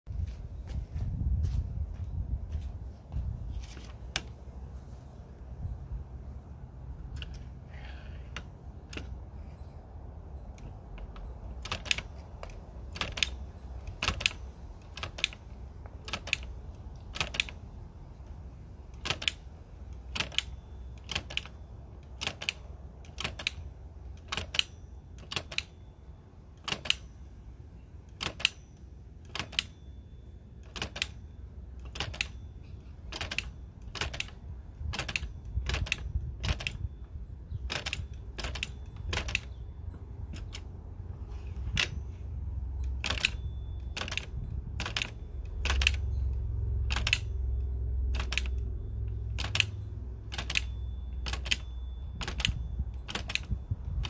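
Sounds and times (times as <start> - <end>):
typewriter metallic clicks: 10.6 - 17.7, 18.9 - 25.7, 26.6 - 27.1, 28.1 - 28.6, 29.2 - 29.7, 30.6 - 31.2, 31.8 - 32.4, 33.0 - 36.8, 37.6 - 39.6, 42.9 - 46.0, 46.9 - 47.3, 48.1 - 48.6, 49.3 - 53.6.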